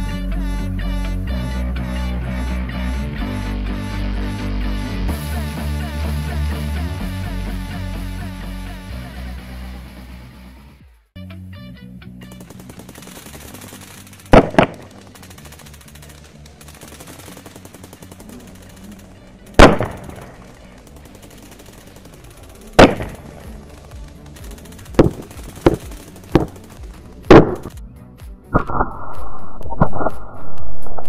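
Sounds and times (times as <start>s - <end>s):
firecracker bangs: 14.3s - 15.0s, 19.6s - 20.4s, 22.7s - 23.6s, 24.9s - 27.8s.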